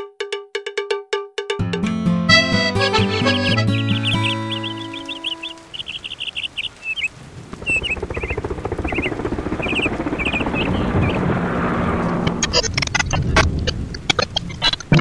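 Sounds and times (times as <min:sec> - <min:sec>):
sustained music notes: 0:01.6 - 0:06.2
small birds chirping: 0:03.0 - 0:11.2.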